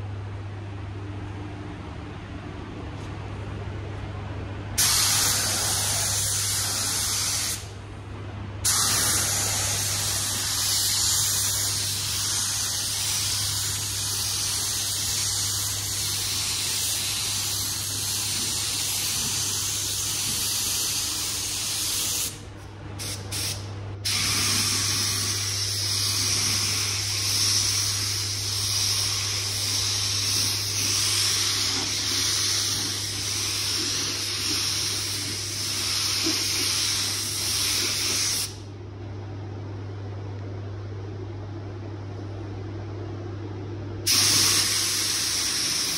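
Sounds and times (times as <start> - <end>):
steady low hum: 0.0 - 45.9
spray gun hissing: 4.8 - 7.7, 8.7 - 22.4, 23.0 - 38.6, 44.1 - 45.9.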